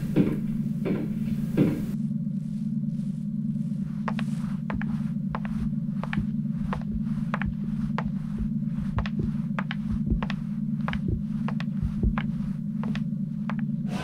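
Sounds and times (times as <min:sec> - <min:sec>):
low steady hum: 0:00.0 - 0:14.0
footsteps clicking on a ramp: 0:03.7 - 0:13.7.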